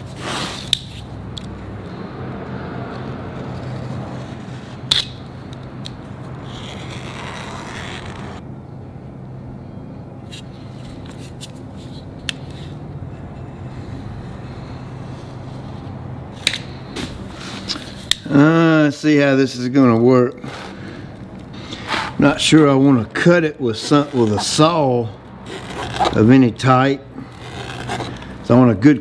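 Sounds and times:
steel straightedge scraping rubber: 0.0 - 1.1, 21.6 - 22.3, 23.7 - 24.8, 25.4 - 26.2
steady low hum: 0.0 - 28.7.

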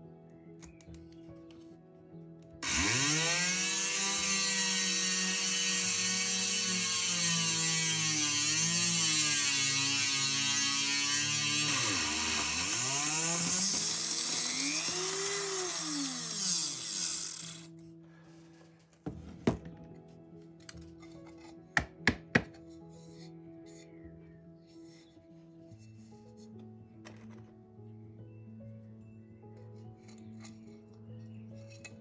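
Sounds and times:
rotary tool drilling glass: 2.6 - 17.8.

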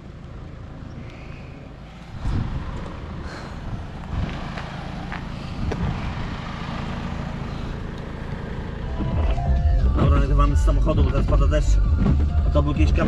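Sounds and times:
wind noise: 2.1 - 4.7, 5.5 - 6.4.

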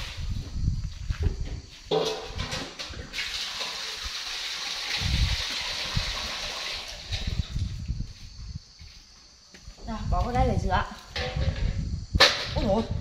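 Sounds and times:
knocks and clatter: 1.2 - 3.1
hose water gushing into metal basin: 2.8 - 7.6.

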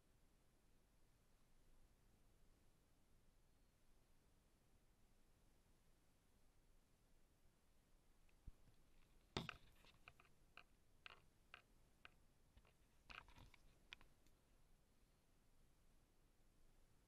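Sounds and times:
faint clicks and taps: 8.2 - 14.4.

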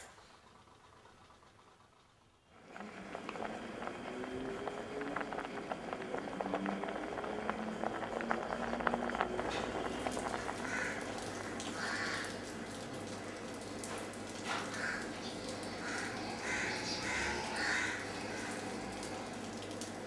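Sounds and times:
crow cawing: 10.6 - 12.8, 14.5 - 19.0.

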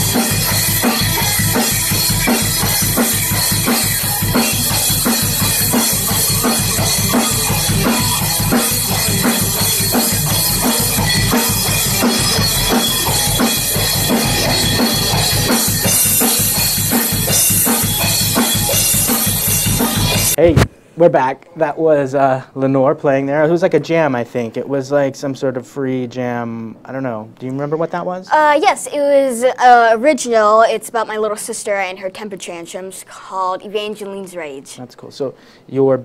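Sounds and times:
electric guitar rock jam: 0.0 - 20.7
drum kit beat: 0.0 - 20.8.

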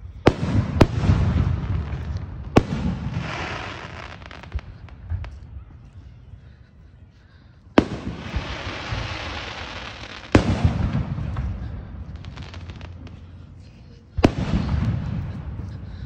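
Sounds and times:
fireworks bangs: 0.0 - 5.5, 7.8 - 13.2, 14.2 - 16.0
fireworks crackling: 0.0 - 5.5, 7.8 - 16.0.

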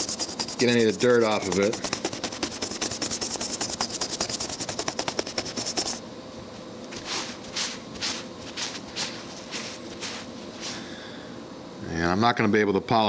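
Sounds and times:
brush scrubbing metal: 0.0 - 6.0, 7.0 - 10.8
cloth rubbing metal plate: 0.0 - 6.0, 6.9 - 10.8.

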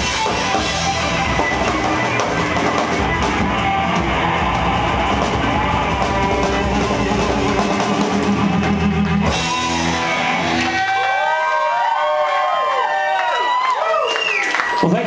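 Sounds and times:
ringing electric guitar: 0.0 - 11.3
live rock band playing: 0.0 - 11.9
crowd whooping: 0.0 - 15.0.

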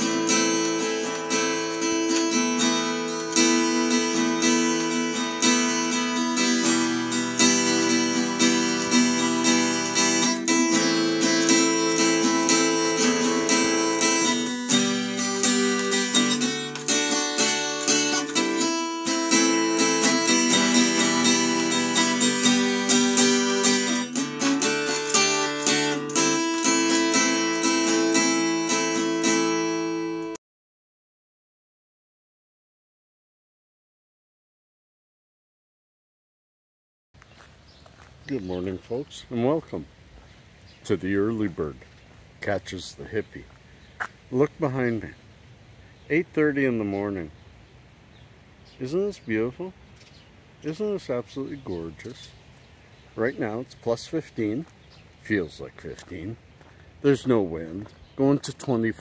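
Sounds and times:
acoustic guitar playing: 0.0 - 30.4, 50.6 - 59.0.

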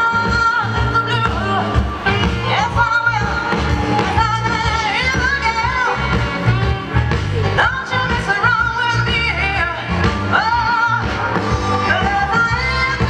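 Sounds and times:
live soul band: 0.0 - 13.0
person singing: 0.0 - 13.0
steady bass line: 0.0 - 13.0.

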